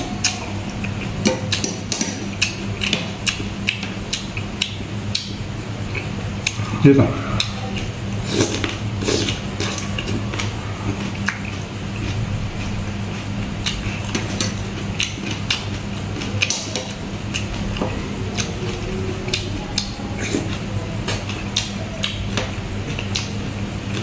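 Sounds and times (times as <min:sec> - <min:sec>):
eating sounds: 0:00.0 - 0:24.0
low hum: 0:00.0 - 0:24.0.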